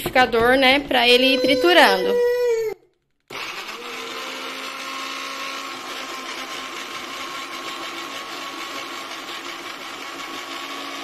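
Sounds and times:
blender chopping garlic: 0:03.3 - 0:11.0.

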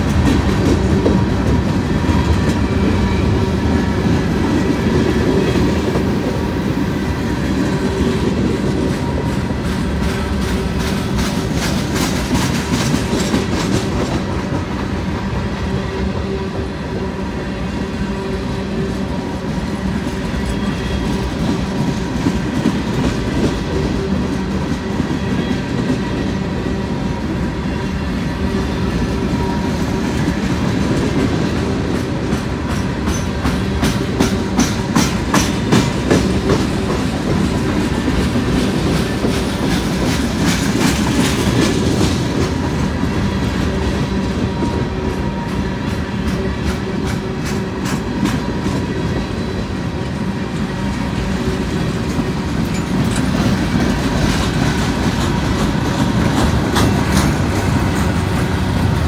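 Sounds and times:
wheels clacking over rail joints: 0:00.0 - 0:06.3, 0:29.3 - 0:49.2, 0:50.0 - 0:59.0
steel wheels rolling on rail: 0:00.0 - 0:59.0.

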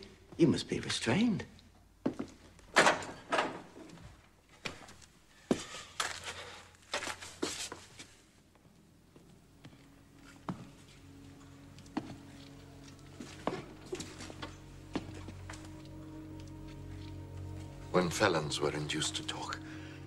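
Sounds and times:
quiet film score: 0:00.0 - 0:20.0
footsteps and scuffing on hard floor: 0:03.9 - 0:17.9.

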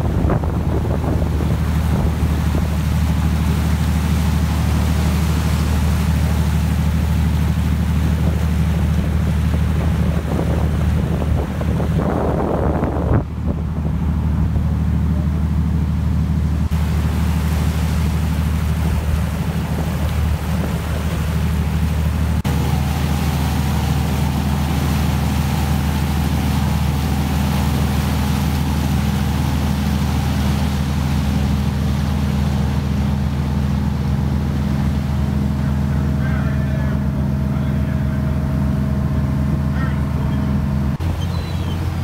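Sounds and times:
wind on microphone: 0:00.0 - 0:03.1, 0:08.1 - 0:14.8
motorboat engine running: 0:00.0 - 0:42.0
water rushing past hull: 0:00.0 - 0:42.0.

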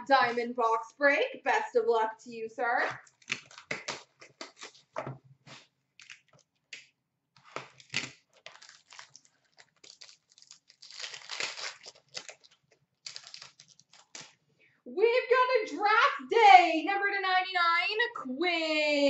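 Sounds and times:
packaging tearing: 0:03.0 - 0:06.5, 0:07.4 - 0:14.4
packaging crinkling and rustling: 0:07.4 - 0:14.4.

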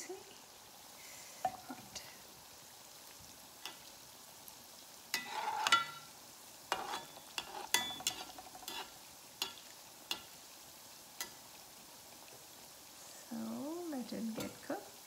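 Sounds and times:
dumplings sizzling in oil: 0:00.0 - 0:15.0
metal spoon clinking against pan: 0:05.2 - 0:06.1, 0:06.7 - 0:10.3.

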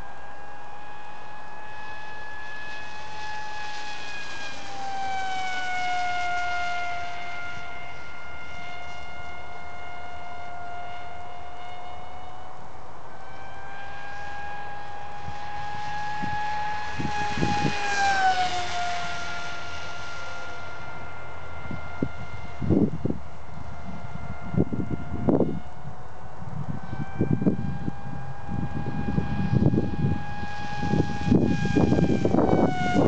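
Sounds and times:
model plane motor whine: 0:00.0 - 0:33.0.

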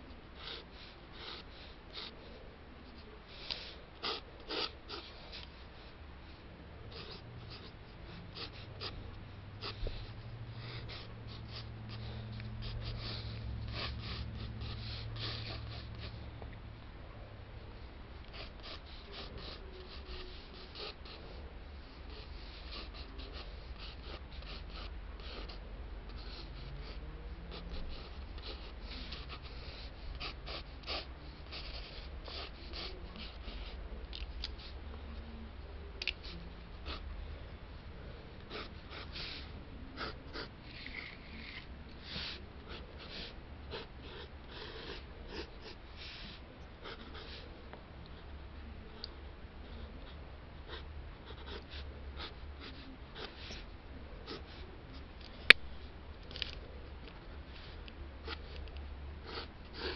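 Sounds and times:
steady low hum: 0:00.0 - 0:59.9
pencil scratching on paper: 0:00.3 - 0:02.3, 0:02.9 - 0:05.6, 0:06.9 - 0:16.2, 0:18.2 - 0:33.8, 0:38.5 - 0:47.4, 0:50.7 - 0:54.7, 0:57.5 - 0:59.9.

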